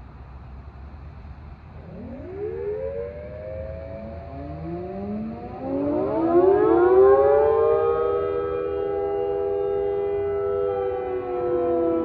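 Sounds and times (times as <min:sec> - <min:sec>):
warning sirens wailing: 0:01.8 - 0:12.0.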